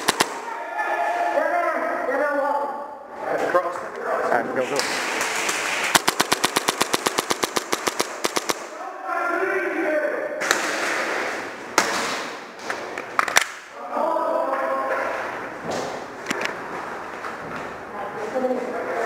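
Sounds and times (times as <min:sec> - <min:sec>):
airsoft gunfire: 0:00.0 - 0:00.5, 0:04.8 - 0:08.8, 0:10.4 - 0:12.5
people shouting: 0:00.0 - 0:02.0.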